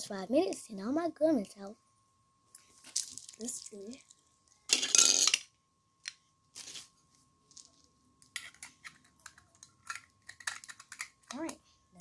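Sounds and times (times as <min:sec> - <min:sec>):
plastic toy egg clicking: 0:08.5 - 0:11.6.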